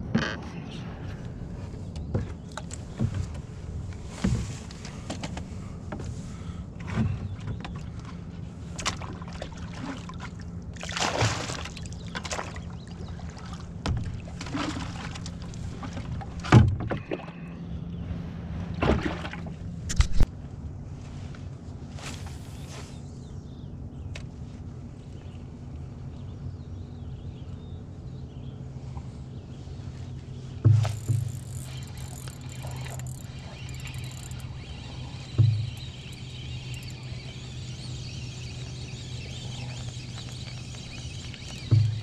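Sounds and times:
steady low hum: 0.0 - 42.0
knocks and scrapes on canoe: 1.6 - 9.1, 29.8 - 42.0.

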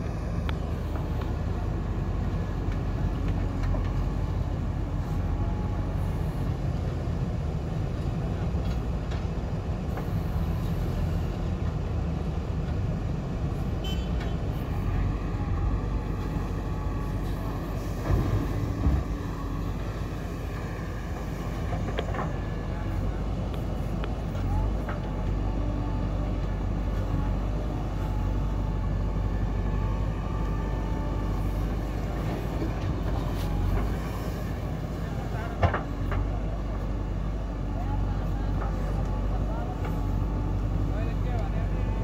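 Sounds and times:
diesel engine under load: 0.0 - 42.0
faint hydraulic whine: 9.9 - 11.5, 13.5 - 42.0.

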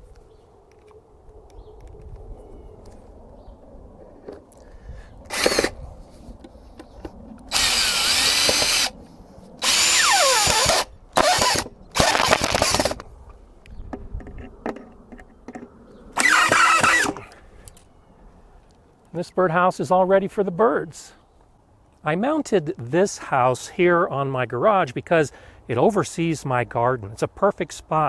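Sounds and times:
power drill driving screws: 5.3 - 5.8, 7.5 - 8.9, 9.6 - 13.0, 16.2 - 17.2.

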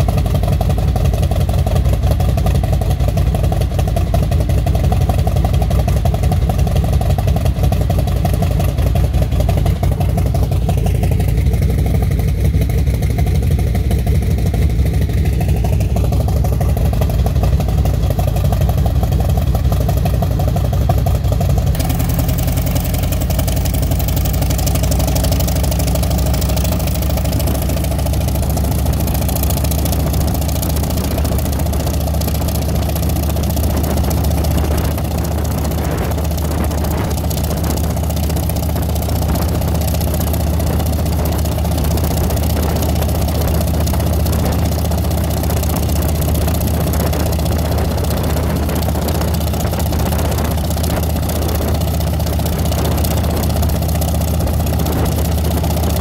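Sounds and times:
helicopter piston engine running: 0.0 - 56.0.

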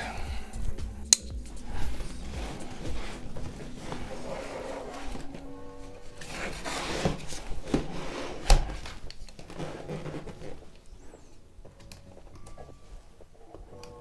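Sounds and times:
cardboard rustling and scraping: 1.6 - 13.6
cardboard box being handled: 1.8 - 10.8.

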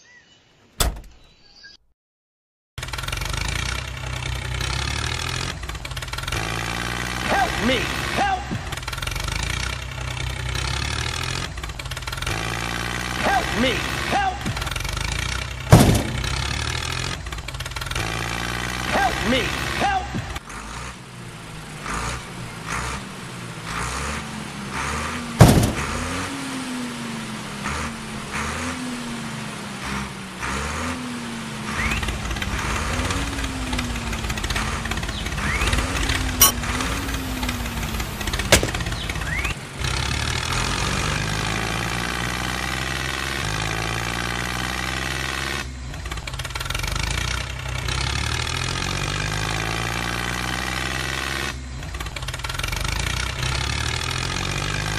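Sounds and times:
tractor engine running: 2.8 - 26.5, 31.4 - 43.7, 44.6 - 49.9, 51.3 - 54.9
sharp clicks: 38.3 - 39.0.

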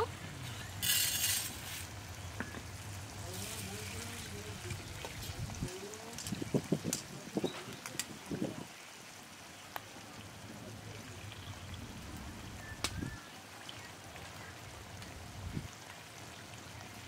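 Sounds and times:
water trickling: 0.0 - 17.0
lentils swishing in water: 0.4 - 2.0.

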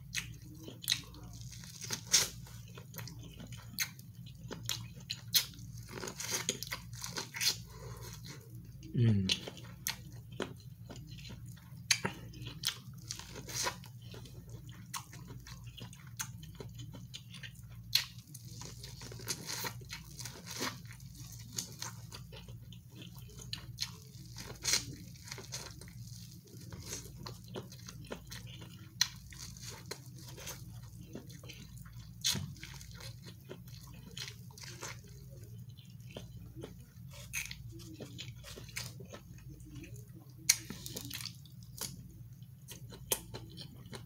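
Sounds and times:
low steady hum: 0.0 - 44.0
person chewing corn: 0.0 - 44.0.

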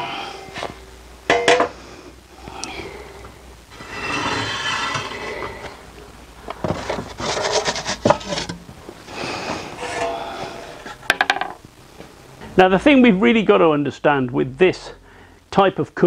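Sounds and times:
wooden peel scraping on stone: 6.7 - 8.5.

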